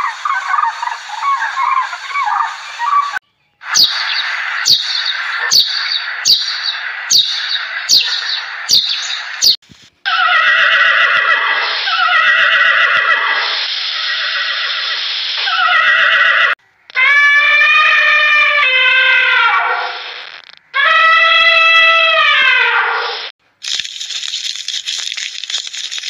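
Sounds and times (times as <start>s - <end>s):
sparrows chirping: 0.0s - 9.6s
ponies whinnying: 10.1s - 19.7s
elephant trumpeting: 10.1s - 23.2s.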